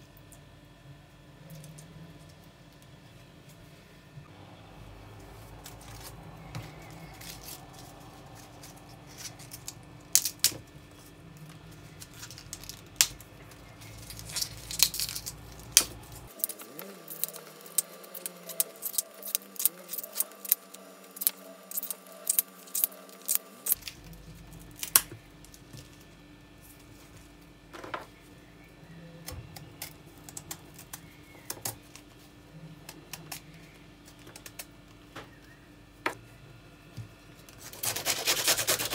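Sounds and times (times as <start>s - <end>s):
artichoke leaves snapping: 5.2s - 25.9s
leaves dropping on wooden board: 11.8s - 20.6s
knife trimming artichoke: 11.8s - 23.8s.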